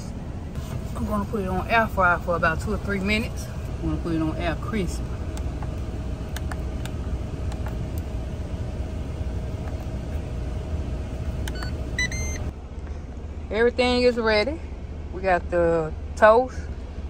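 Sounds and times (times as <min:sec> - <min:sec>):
engine idling: 0:00.0 - 0:17.0
faint steady hum: 0:00.0 - 0:17.0
short electronic beep: 0:11.6 - 0:12.4.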